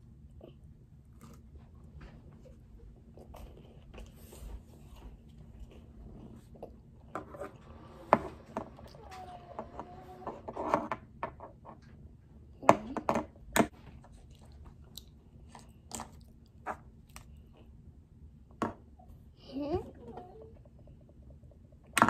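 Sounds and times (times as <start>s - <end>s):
chewing and mouth sounds: 13.9s - 17.8s.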